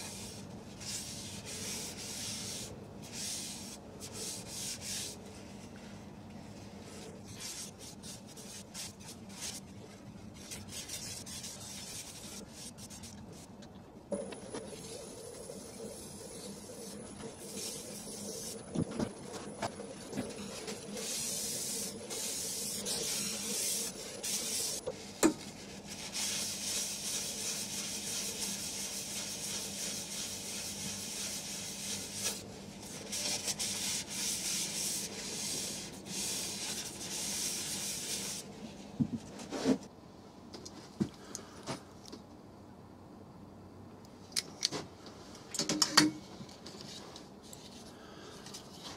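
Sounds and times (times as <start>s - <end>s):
faint steady hum: 0.0s - 48.9s
cloth rubbing wooden bowl: 25.5s - 38.4s.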